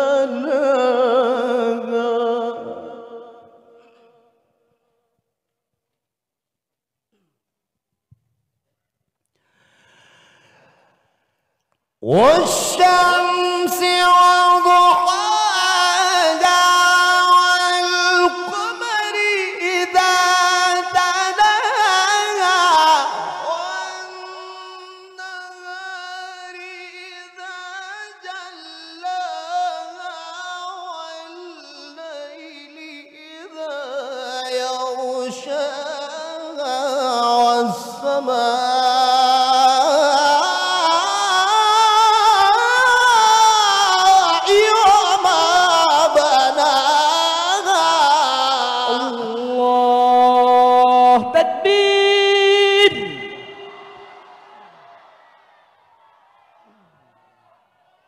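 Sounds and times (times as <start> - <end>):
man reciting melodically: 0.0 - 4.0, 12.0 - 54.0.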